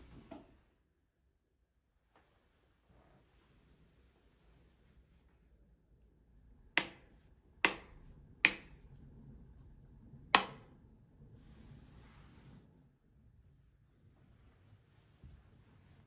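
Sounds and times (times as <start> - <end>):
light switches clicking: 6.7 - 8.9, 10.3 - 10.7.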